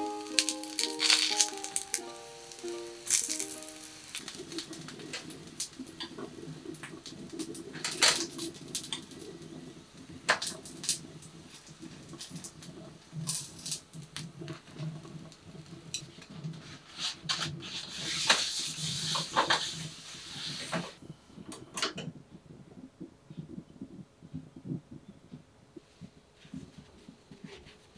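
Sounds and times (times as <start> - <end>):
chopsticks tapping on metal: 0.0 - 4.8
oil sizzling in pan: 0.0 - 21.0.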